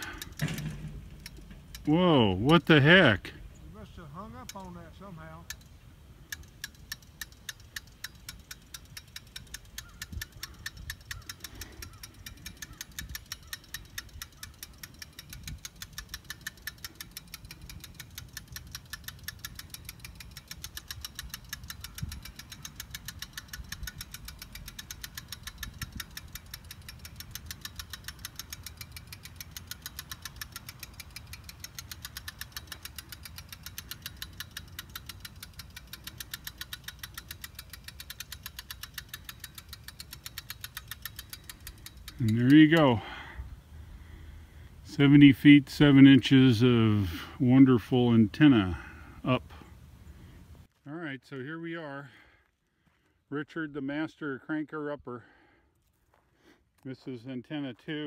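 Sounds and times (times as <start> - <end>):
ratchet winch clicking: 0.0 - 3.2, 4.2 - 4.8, 5.4 - 43.4.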